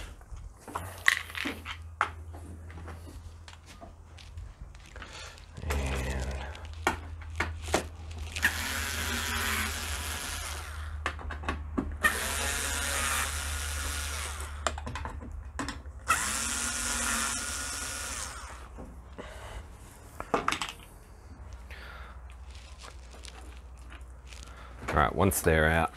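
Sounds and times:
cordless drill motor running: 8.3 - 11.0, 12.0 - 14.6, 16.0 - 18.7.

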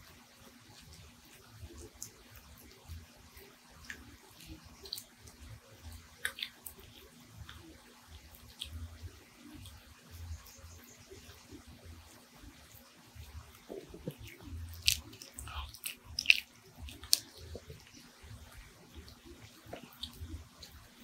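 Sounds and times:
small dog chewing: 0.0 - 21.0.

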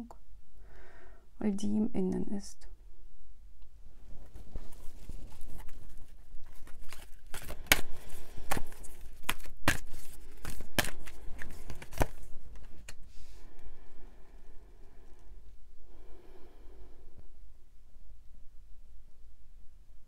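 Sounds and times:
cards shuffling and rustling: 4.2 - 13.1
sharp clicks of cards: 6.9 - 13.0.

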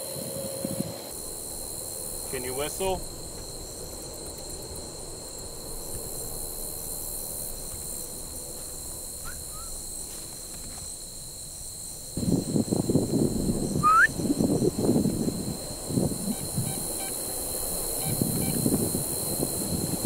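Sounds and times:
crickets trilling: 0.0 - 20.0
rustling and buffeting noise: 0.0 - 20.0
rising whistle-like chirp: 9.2 - 9.8, 13.8 - 14.2.

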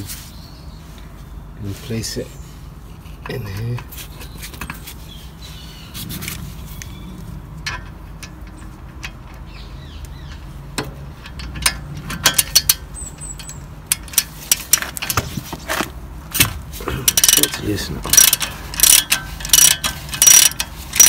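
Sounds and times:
metallic knocks: 7.6 - 21.0
ratchet pawl clicking: 17.1 - 21.0.

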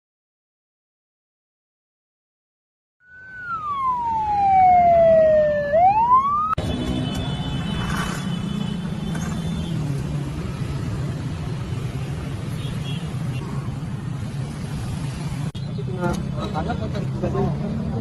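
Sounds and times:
siren wailing: 3.0 - 6.6.

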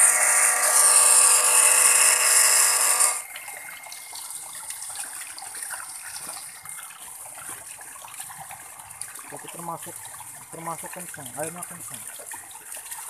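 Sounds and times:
water pump motor whining: 0.0 - 4.9, 8.4 - 12.1
water gushing: 0.0 - 13.0.

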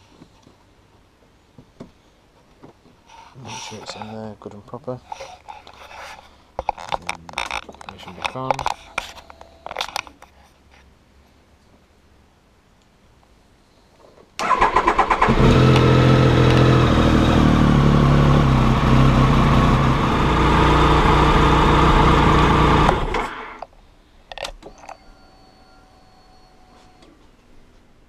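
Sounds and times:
electric starter cranking: 14.4 - 17.6, 18.7 - 23.6.

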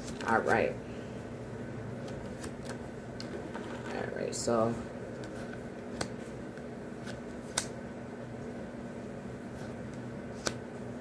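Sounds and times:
faint steady hum: 0.0 - 11.0
cards snapping and tapping: 5.2 - 7.8, 9.9 - 10.6.

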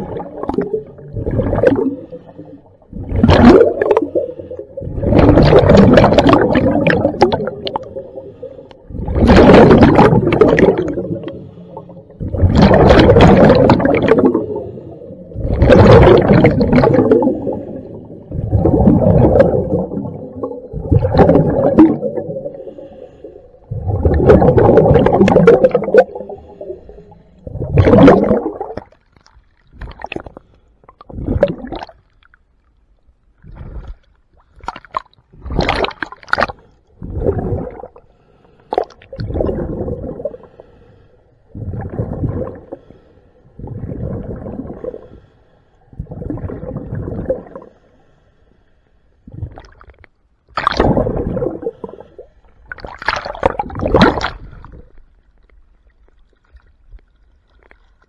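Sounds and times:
diver's exhaled air bubbling underwater: 0.0 - 32.1, 33.4 - 38.0, 38.7 - 40.7, 41.5 - 47.8, 49.2 - 55.5.

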